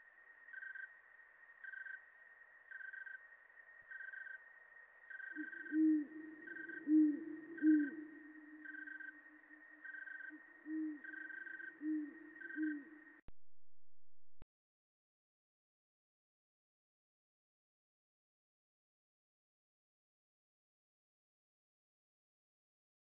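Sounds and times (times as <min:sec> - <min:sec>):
owl hooting: 0:05.1 - 0:13.2.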